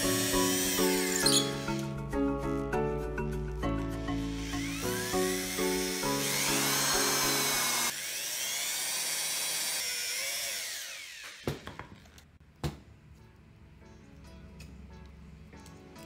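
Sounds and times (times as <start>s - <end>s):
electric drill boring through wood: 0.0s - 1.9s, 4.1s - 11.7s
background music: 0.0s - 7.9s, 12.7s - 16.0s.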